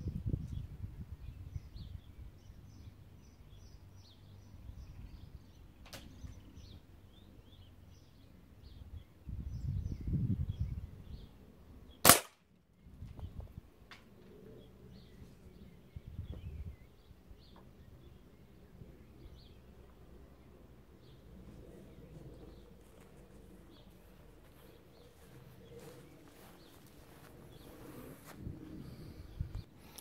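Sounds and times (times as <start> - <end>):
air rifle shot: 12.0 - 12.4
birds chirping faintly: 14.1 - 30.0.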